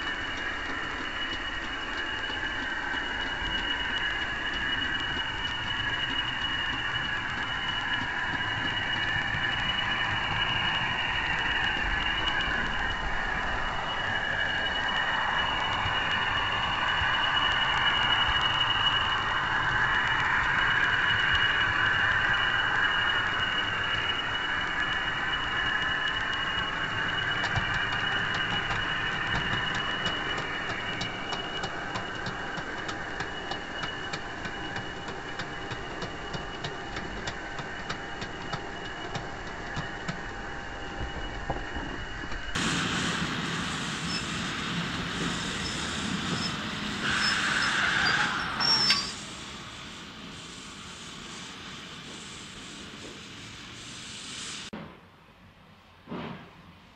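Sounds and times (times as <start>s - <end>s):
wheels rumbling on track: 0.0s - 54.7s
wheels clicking over rail joints: 25.6s - 40.6s
model train motor whine: 42.2s - 54.7s.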